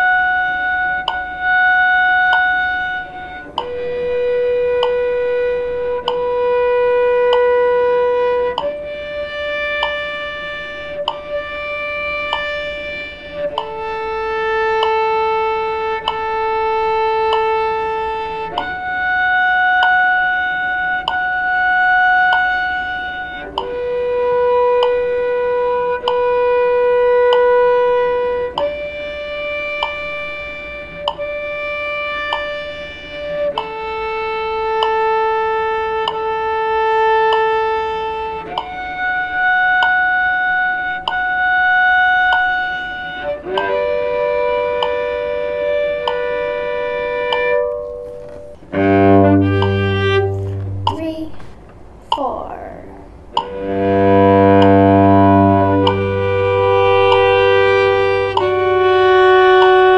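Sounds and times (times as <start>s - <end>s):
cello long bowed notes: 0.0s - 51.7s, 52.3s - 59.9s
steady tick: 1.0s - 1.3s, 4.8s - 6.4s, 8.4s - 9.0s, 9.8s - 10.1s, 12.3s - 15.1s, 15.9s - 19.0s, 21.0s - 21.4s, 24.7s - 25.0s, 31.0s - 31.3s, 36.0s - 36.2s, 37.3s - 38.8s, 47.3s - 52.6s, 53.2s - 56.1s, 57.1s - 59.8s.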